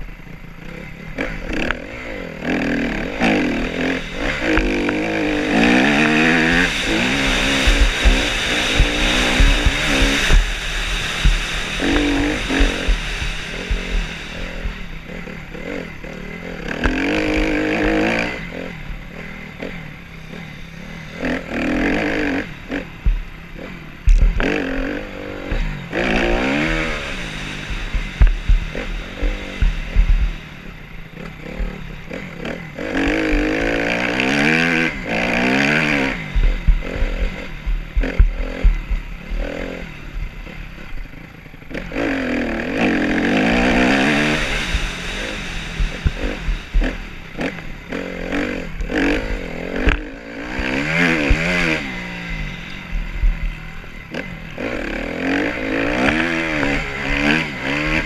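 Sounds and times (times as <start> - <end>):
motorcycle engine revving: 0.0 - 58.0
low thumps: 3.5 - 16.1, 22.8 - 24.5, 25.5 - 32.2, 35.5 - 40.6, 43.4 - 50.0, 50.6 - 53.8
wind buffeting microphone: 4.0 - 16.0, 24.0 - 24.5, 25.5 - 32.1, 35.6 - 39.3, 43.4 - 50.0.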